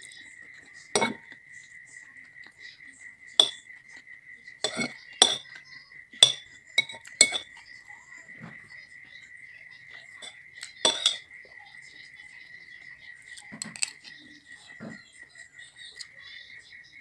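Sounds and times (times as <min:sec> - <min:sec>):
cutlery clinking on ceramic bowl: 0:01.0 - 0:01.4, 0:03.4 - 0:03.7, 0:04.6 - 0:05.6, 0:06.2 - 0:07.6, 0:10.2 - 0:11.3, 0:13.3 - 0:14.1.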